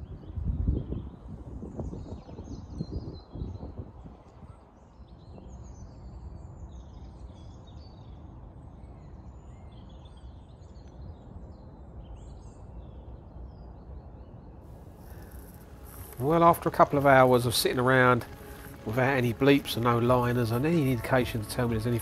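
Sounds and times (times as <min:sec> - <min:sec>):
small birds chirping: 0:14.7 - 0:22.0
steady low rumble: 0:14.7 - 0:22.0.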